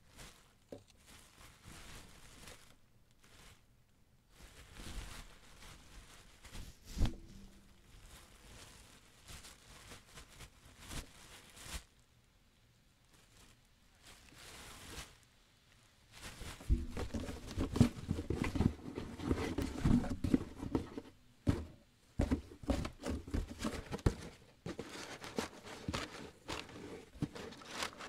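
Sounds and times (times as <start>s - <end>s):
bags and cardboard rustling: 0.0s - 3.7s, 4.3s - 12.0s, 16.1s - 28.0s
footsteps: 16.4s - 28.0s
knocks and thumps: 16.6s - 24.9s.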